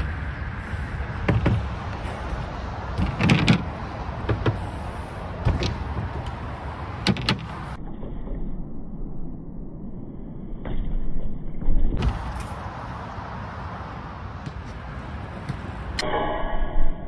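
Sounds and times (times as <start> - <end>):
bike tyres rolling on concrete: 0.0 - 7.8, 11.7 - 16.0
bike knocking on ramp edges: 1.2 - 4.8.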